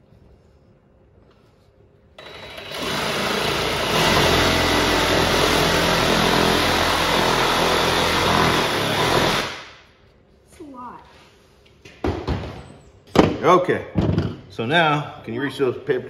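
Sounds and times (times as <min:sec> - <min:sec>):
electric saw cutting bone: 0:02.2 - 0:09.7.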